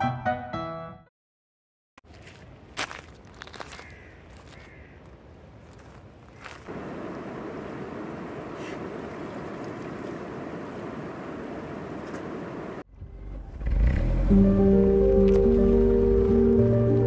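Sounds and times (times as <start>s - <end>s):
background music: 0.0s - 1.1s, 13.0s - 17.0s.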